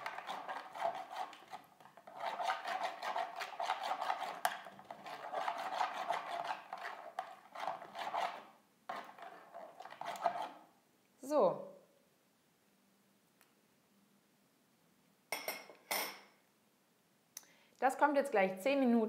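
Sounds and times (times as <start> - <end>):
eggs being beaten by hand: 0.0 - 10.6.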